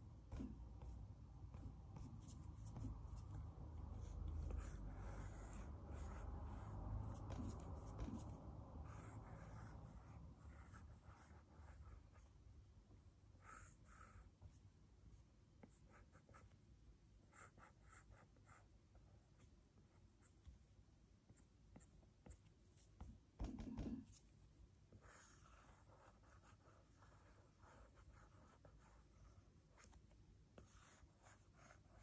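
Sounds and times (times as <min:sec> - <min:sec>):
stylus tapping on glass screen: 0:23.4 - 0:24.1.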